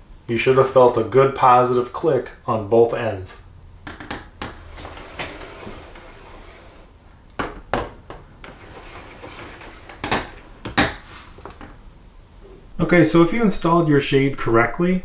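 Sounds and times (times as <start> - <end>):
roller shade clacks: 4.4 - 6.9, 8.4 - 11.8.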